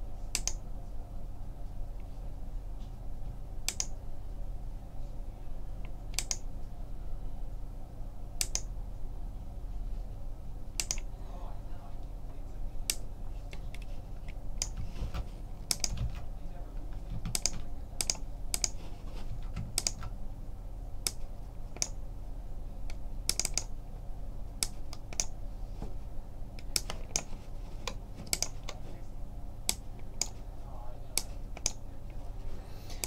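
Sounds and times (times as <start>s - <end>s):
low steady hum: 0.0s - 33.0s
keyboard key clicks: 0.4s - 0.6s, 10.8s - 11.1s, 15.6s - 16.2s, 17.2s - 18.8s, 19.6s - 20.2s.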